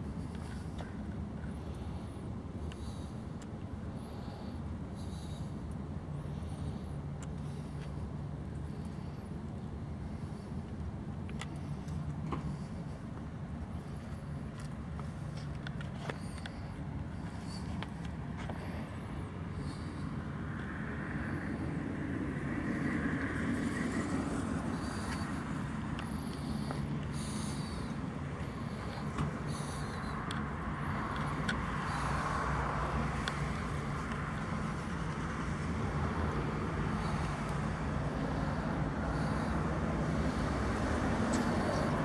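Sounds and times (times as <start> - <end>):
car engine idling: 23.3 - 42.0.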